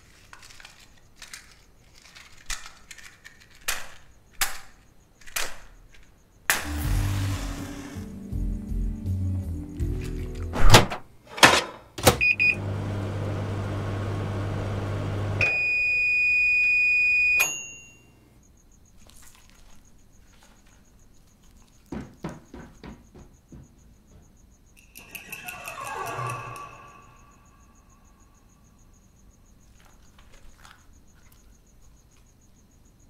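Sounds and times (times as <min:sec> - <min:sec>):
microwave humming: 0:06.5 - 0:17.8
keypad beep: 0:12.2 - 0:12.6
long loud beep: 0:12.2 - 0:12.6, 0:15.4 - 0:18.1.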